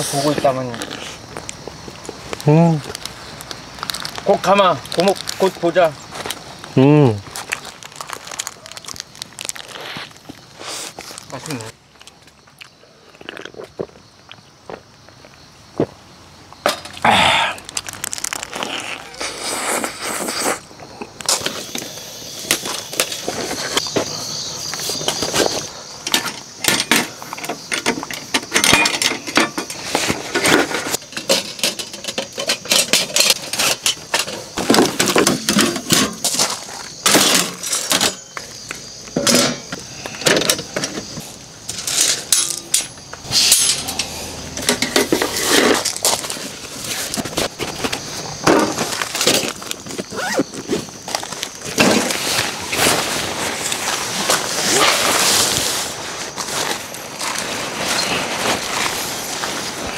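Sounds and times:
faint high-pitched hiss: 0.0s - 59.9s
clicks and clinks of small objects: 41.7s - 46.4s.

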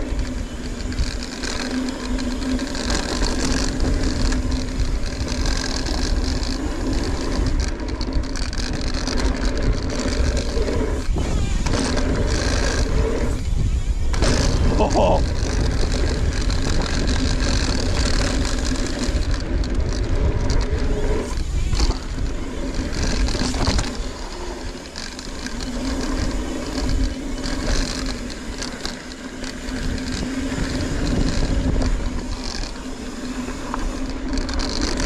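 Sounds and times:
bike rattling: 0.0s - 35.0s
tyres on dirt: 0.0s - 35.0s
wind rushing over microphone: 0.0s - 35.0s.

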